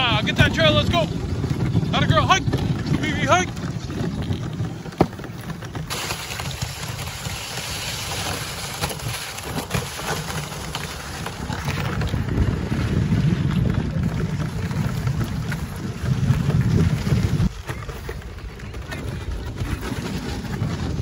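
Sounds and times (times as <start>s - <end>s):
wind rumbling on microphone: 0.0s - 21.0s
sled runners hissing on snow: 5.9s - 11.5s.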